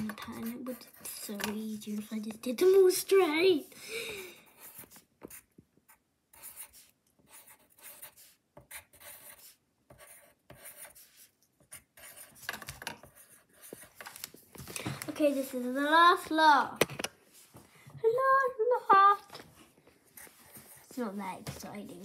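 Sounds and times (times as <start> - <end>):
pencil scratching on paper: 0.0 - 14.2, 20.1 - 21.3.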